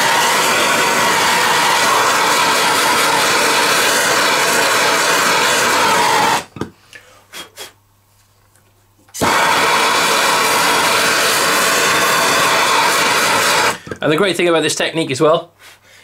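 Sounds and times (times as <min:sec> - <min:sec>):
blowtorch flame roaring: 0:00.0 - 0:06.5, 0:09.2 - 0:13.9.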